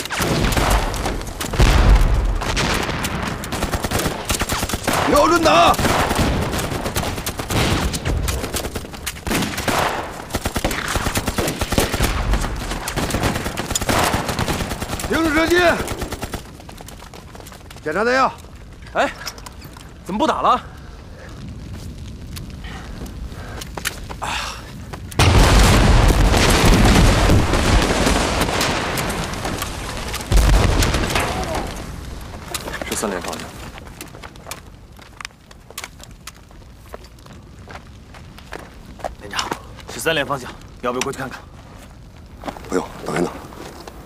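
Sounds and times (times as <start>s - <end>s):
explosions booming: 0.0s - 16.2s, 25.2s - 33.3s
gunfire cracks: 0.0s - 16.4s
machine-gun fire: 0.1s - 16.5s
rapid rifle shots: 2.4s - 16.6s.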